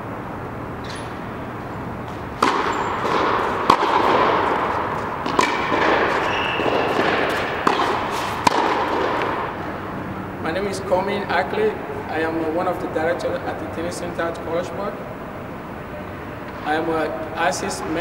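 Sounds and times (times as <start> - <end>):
steady background noise: 0.0 - 18.0
tennis ball hit by racket: 2.0 - 9.9.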